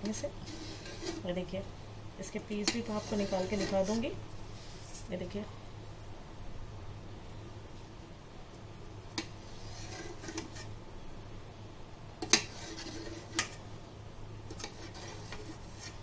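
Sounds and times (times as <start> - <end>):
low steady hum: 0.0 - 16.0
knife clicking and scraping on metal pan: 12.2 - 13.5.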